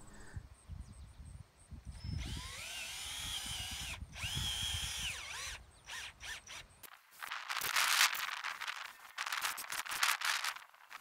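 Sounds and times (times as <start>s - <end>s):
power drill motor whining: 2.0s - 6.7s.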